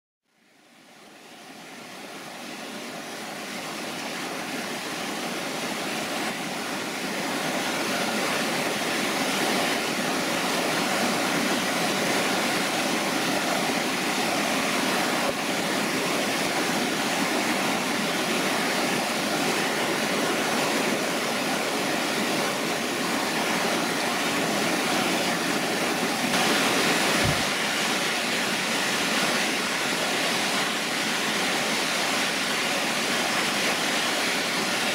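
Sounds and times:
river rushing over rocks: 0.4s - 34.9s.

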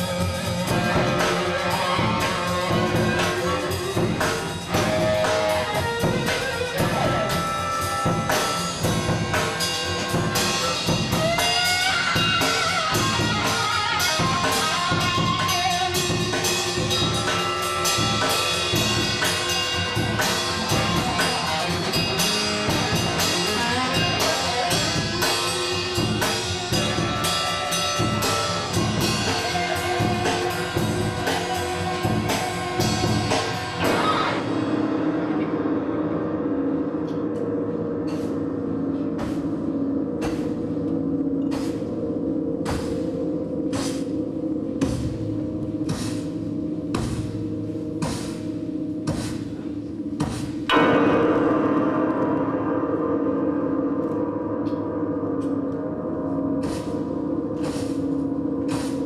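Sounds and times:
driving drumbeat: 0.0s - 34.6s, 44.7s - 51.1s
orchestra playing fast film music: 0.0s - 35.0s
sliding notes: 0.0s - 59.0s.

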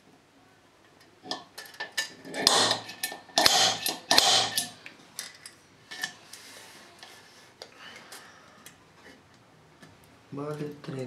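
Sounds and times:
scriber scraping iron bar: 2.0s - 4.8s.

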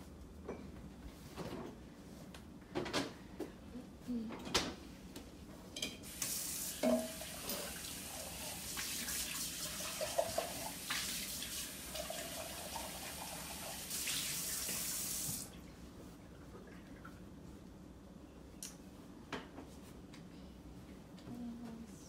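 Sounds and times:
tap running into sink: 6.1s - 7.5s.

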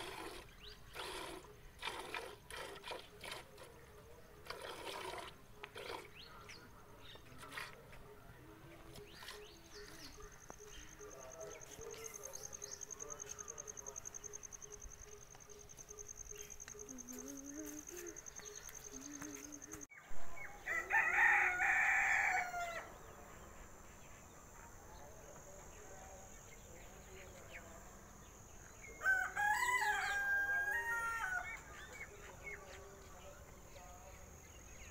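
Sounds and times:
rooster crowing: 20.5s - 22.9s, 29.0s - 31.6s.

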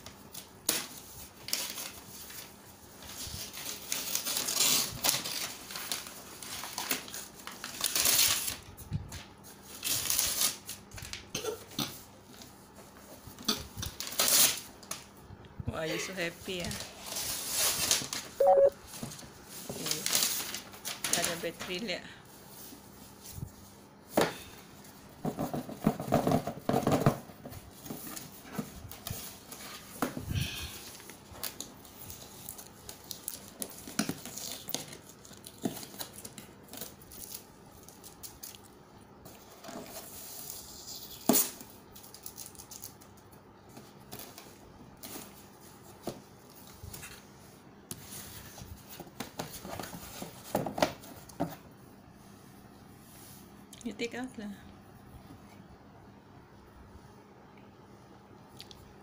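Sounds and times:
cardboard and paper rustling: 0.3s - 11.2s, 16.1s - 24.2s, 24.8s - 38.6s, 39.2s - 51.7s.

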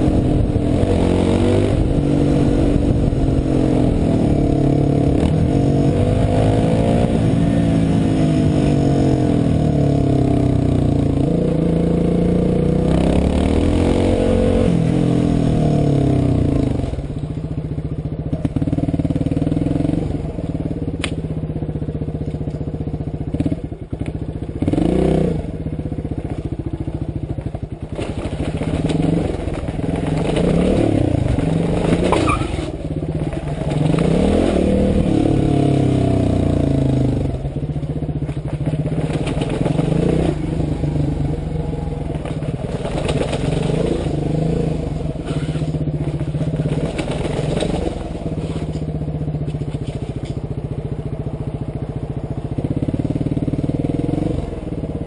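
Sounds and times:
motorcycle engine revving: 0.0s - 55.0s
engine clatter: 15.8s - 55.0s.

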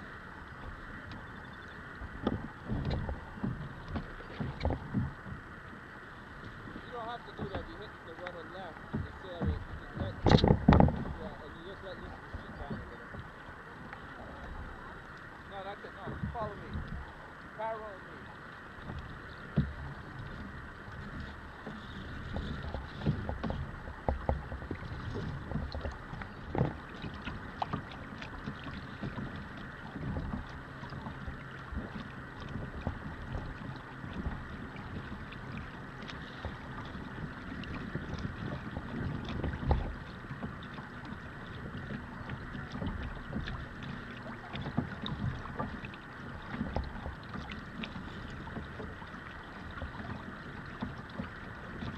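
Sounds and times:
water lapping against kayak hull: 0.0s - 51.9s
wind noise on microphone: 1.5s - 5.5s, 9.1s - 13.0s, 18.9s - 40.1s.

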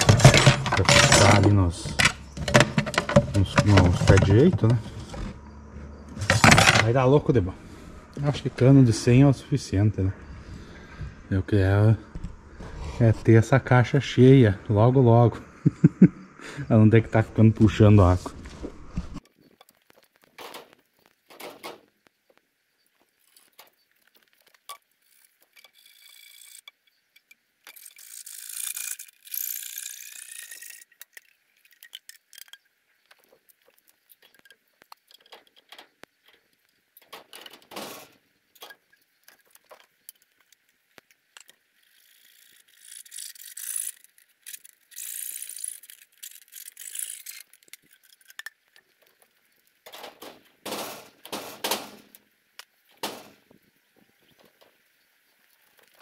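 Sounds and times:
plastic pipe scraping and squeaking: 0.0s - 13.4s.

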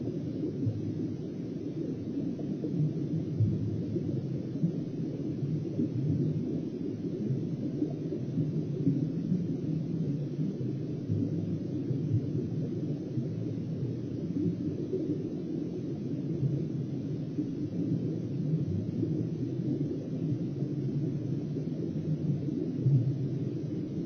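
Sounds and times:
muffled underwater rumble: 0.0s - 24.0s.

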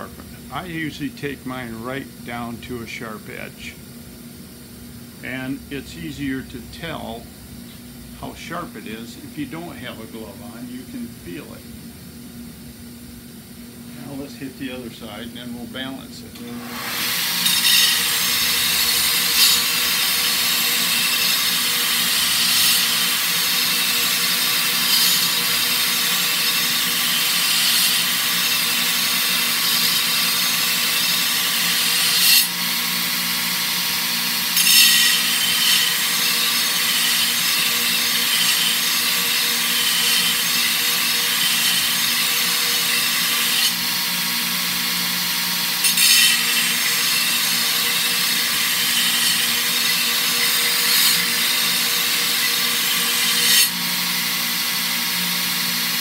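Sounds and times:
belt sander motor hum: 16.4s - 56.0s
blade grinding on sanding belt: 16.5s - 56.0s.

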